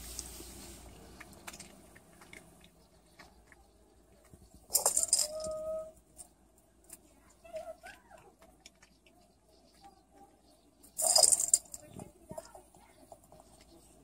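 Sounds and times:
treat ball rattling on tiled floor: 4.6 - 5.6, 11.0 - 12.6.

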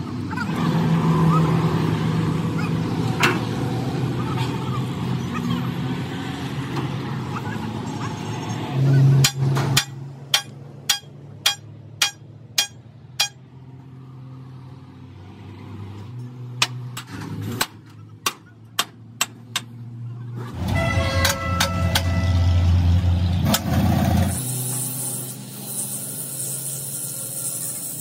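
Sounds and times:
hammer blows on metal: 9.2 - 13.4.

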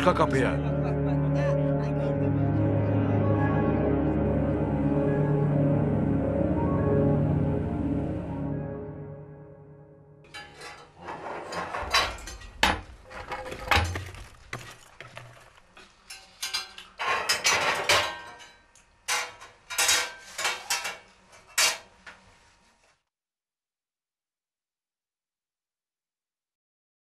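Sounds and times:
dishes and pots clattering: 10.3 - 22.0.

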